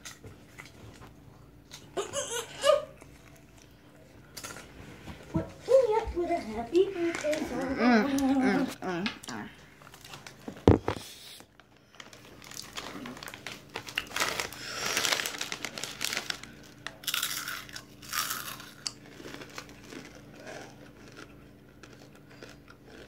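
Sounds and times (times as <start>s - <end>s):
plastic packaging crinkling: 9.9s - 11.0s, 11.6s - 20.2s.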